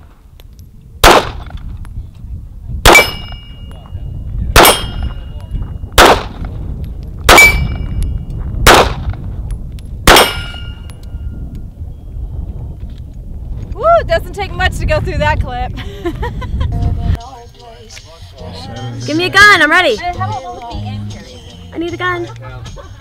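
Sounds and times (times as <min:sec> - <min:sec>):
pistol shots: 0:01.0 - 0:01.6, 0:02.8 - 0:03.5, 0:04.6 - 0:05.2, 0:06.0 - 0:06.4, 0:07.3 - 0:08.0, 0:08.6 - 0:09.2, 0:10.1 - 0:10.9
bullets ringing on steel plate: 0:02.9 - 0:03.8, 0:04.6 - 0:05.2, 0:07.3 - 0:08.0, 0:10.1 - 0:11.0.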